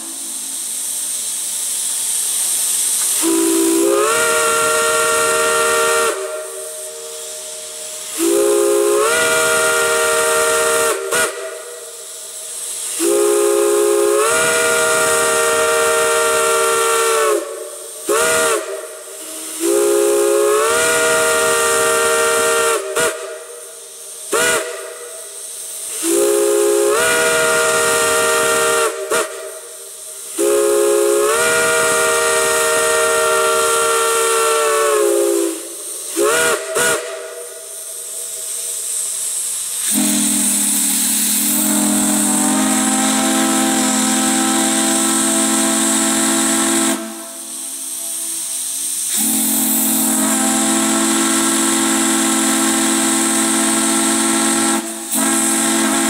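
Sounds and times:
chime steam whistle blowing: 0.0 - 56.0
hiss of escaping steam: 0.0 - 56.0.

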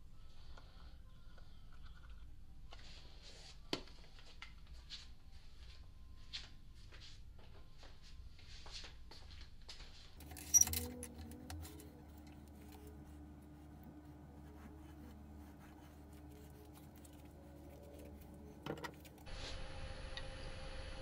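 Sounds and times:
low steady hum: 10.2 - 21.0.

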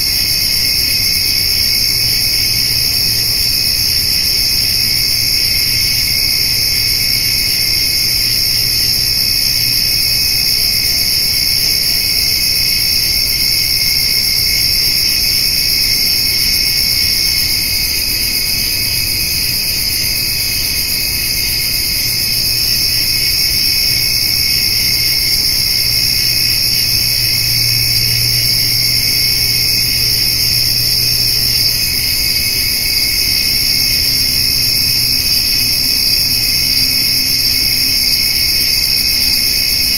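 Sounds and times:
crickets and grasshoppers trilling: 0.0 - 39.9.

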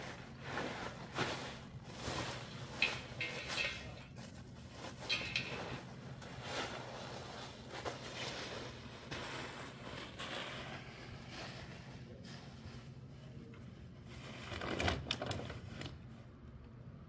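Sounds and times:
objects clattering and knocking: 0.0 - 11.2, 14.0 - 16.0.

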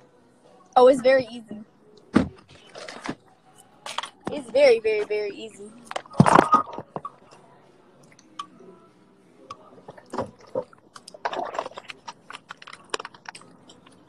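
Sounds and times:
clicks and crackles at microphone: 9.5 - 14.0.

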